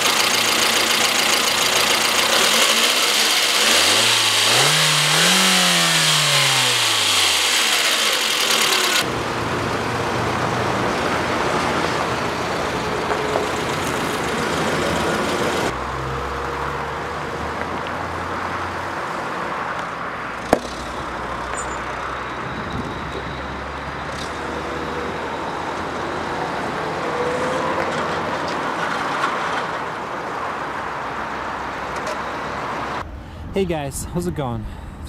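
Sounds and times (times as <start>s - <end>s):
vehicle engine running steadily: 0.0s - 15.8s.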